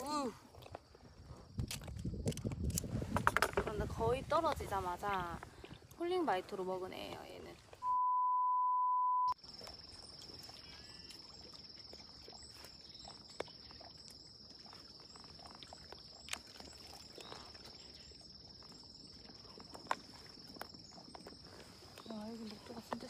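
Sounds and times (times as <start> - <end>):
insects trilling: 9.4 - 23.0.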